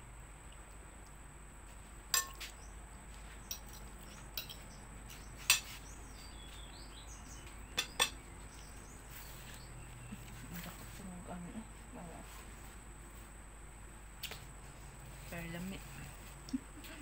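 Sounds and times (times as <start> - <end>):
fork clinking on plate: 2.2 - 2.5, 7.8 - 8.2.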